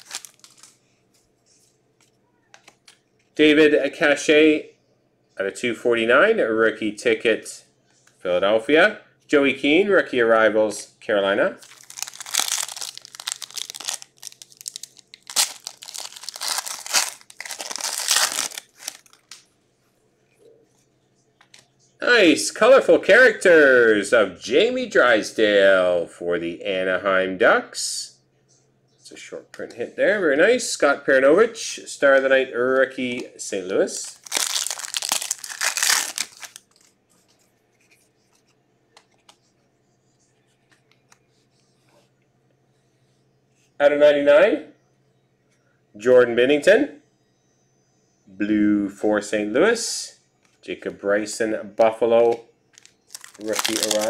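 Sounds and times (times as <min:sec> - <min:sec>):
foil wrapper tearing and crinkling: 0:00.0 - 0:00.7, 0:11.6 - 0:19.4, 0:34.2 - 0:36.8, 0:52.8 - 0:54.0.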